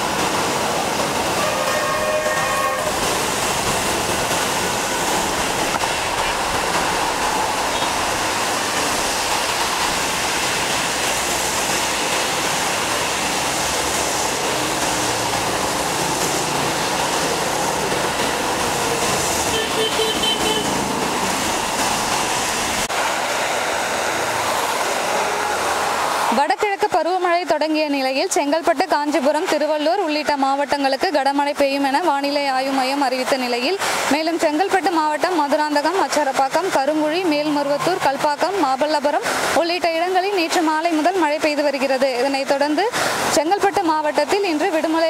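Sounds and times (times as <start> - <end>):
heavy rain on wet road: 0.0 - 26.4, 33.6 - 34.2, 36.2 - 45.0
vehicles hissing through water: 0.0 - 26.6, 33.6 - 34.4, 38.7 - 44.7.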